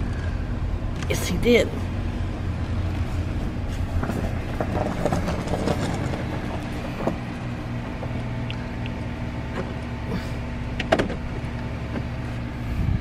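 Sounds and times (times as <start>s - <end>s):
car engine running: 0.0s - 13.0s
knocks and rustles: 3.1s - 7.3s.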